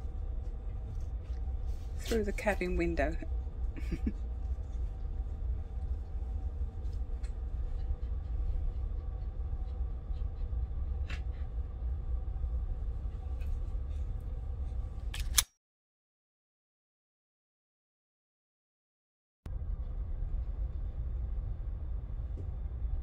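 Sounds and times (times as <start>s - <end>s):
ship engines rumbling: 0.0s - 15.1s
constant hum: 0.0s - 15.5s, 19.5s - 23.0s.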